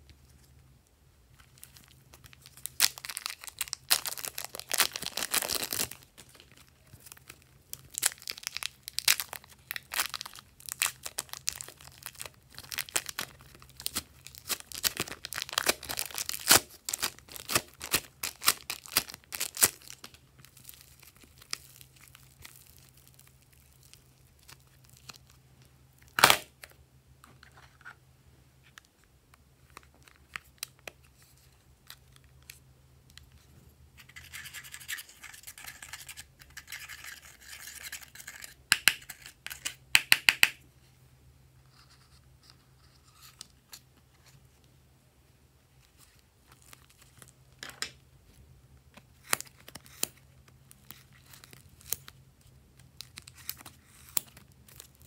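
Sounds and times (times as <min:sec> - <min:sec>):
plastic wrapping crinkling and tearing: 0:01.4 - 0:25.4, 0:26.0 - 0:26.6, 0:49.0 - 0:55.0.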